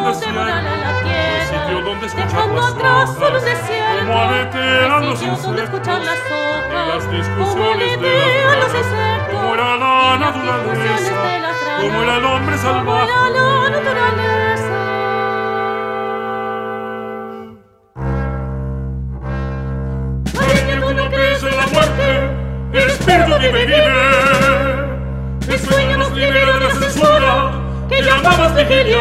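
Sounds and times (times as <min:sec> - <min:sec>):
low bass notes: 0:00.0 - 0:11.2, 0:17.3 - 0:29.0
singer with wide vibrato: 0:00.0 - 0:17.6, 0:20.4 - 0:29.0
brass: 0:00.0 - 0:29.0.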